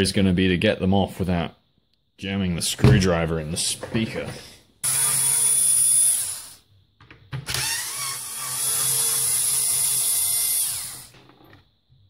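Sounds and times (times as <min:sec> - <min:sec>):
electric screwdriver whirring: 0:04.8 - 0:06.6, 0:07.5 - 0:11.2.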